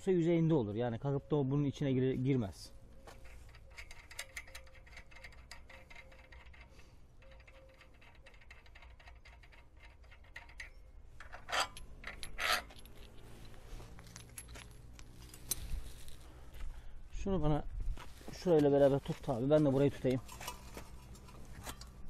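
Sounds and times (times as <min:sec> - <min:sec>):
metal scraping clanks: 0:03.0 - 0:16.1, 0:19.9 - 0:22.0
rapid light metallic clicks: 0:03.1 - 0:13.5.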